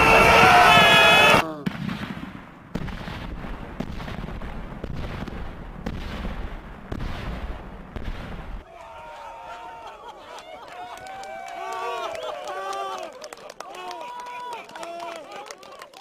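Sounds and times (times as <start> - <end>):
sharp explosive cracks: 0.6 - 8.6.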